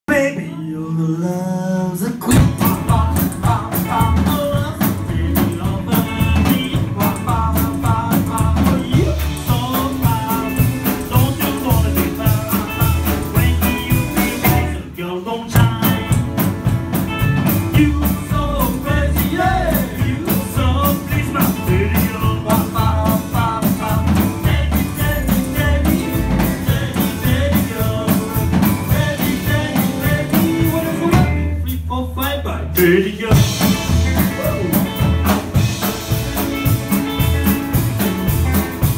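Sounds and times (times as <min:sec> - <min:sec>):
man singing: 0:00.0 - 0:16.5, 0:17.2 - 0:38.8
rock and roll band playing: 0:02.0 - 0:38.9.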